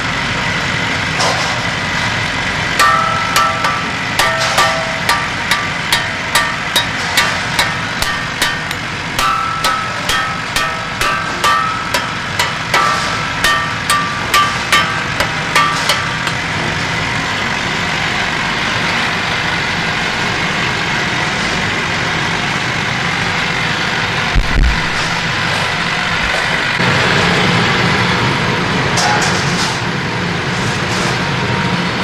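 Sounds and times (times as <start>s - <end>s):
machine running: 2.6s - 20.9s.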